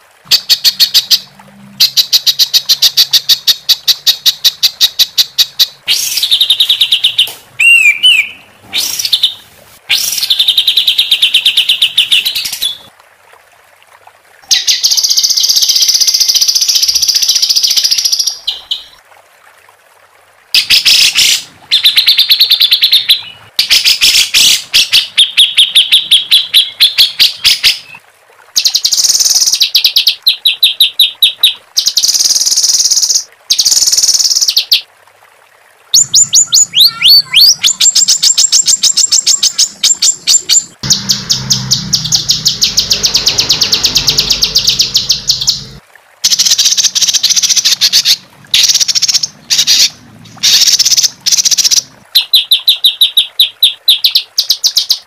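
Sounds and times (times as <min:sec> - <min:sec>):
songbird fast trills: 0:36.0 - 0:45.8.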